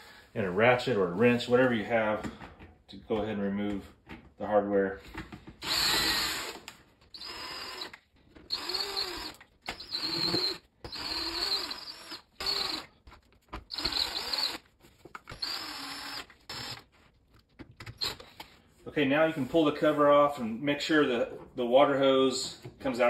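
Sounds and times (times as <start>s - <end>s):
cordless drill bursts: 5.6s - 12.9s, 13.7s - 14.6s, 15.3s - 16.9s.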